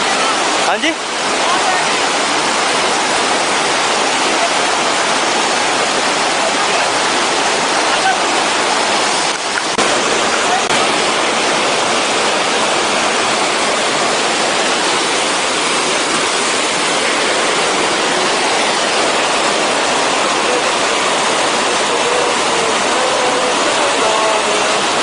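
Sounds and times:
stream rushing over boulders: 0.0 - 25.0.

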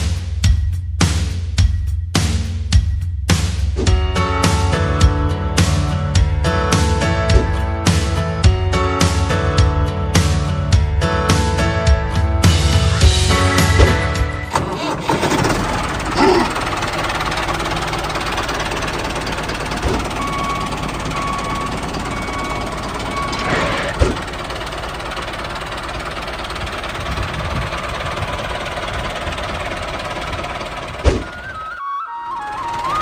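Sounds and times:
short thuds: 7.3 - 7.6, 31.0 - 31.4
small machinery rattling drone: 13.4 - 31.7, 32.3 - 33.0.

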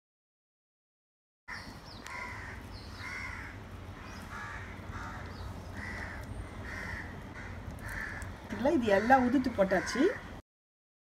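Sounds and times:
crow cawing: 1.5 - 10.2.

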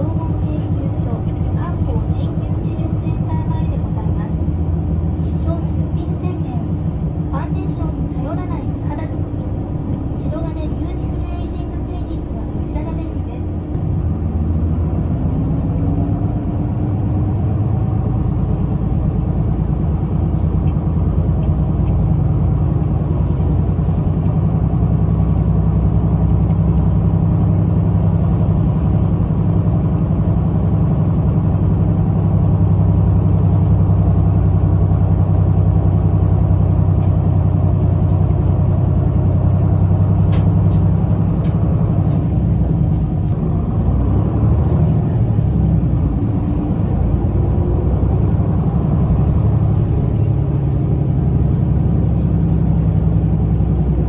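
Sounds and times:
bus engine and road noise: 0.0 - 54.0.

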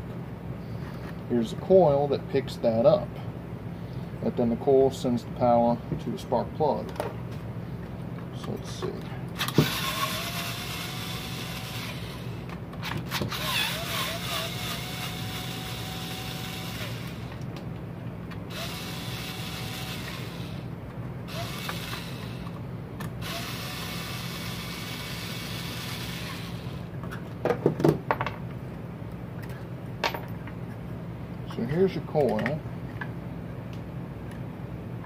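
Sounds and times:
screwdriver grinding on screws: 9.4 - 12.4, 13.1 - 17.3, 18.5 - 20.6, 21.3 - 22.5, 23.2 - 26.8.

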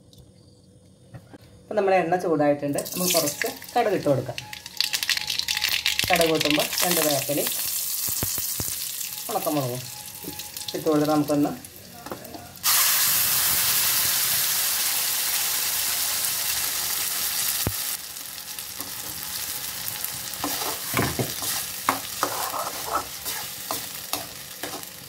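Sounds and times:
food sizzling in hot oil: 2.8 - 25.0
spoon scraping a pan: 20.4 - 25.0.

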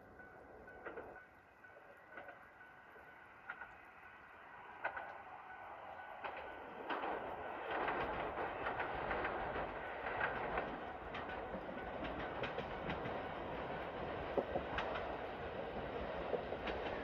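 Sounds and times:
train wheels clicking over rail joints: 4.7 - 17.0.

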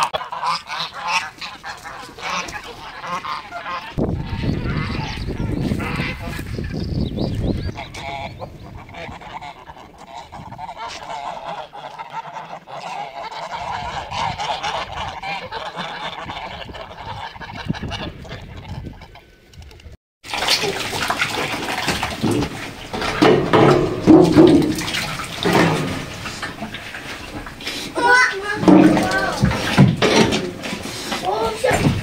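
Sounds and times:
geese calling: 0.0 - 19.3, 22.3 - 31.8
feed splashing into a trough: 20.2 - 32.0.

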